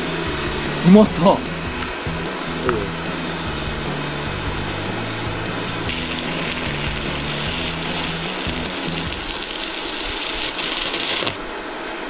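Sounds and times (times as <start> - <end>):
welding arc crackling: 3.4 - 11.5.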